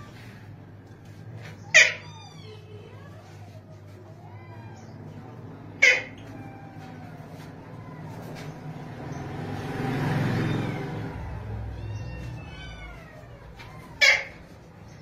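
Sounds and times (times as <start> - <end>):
parakeet calls: 5.8 - 6.2.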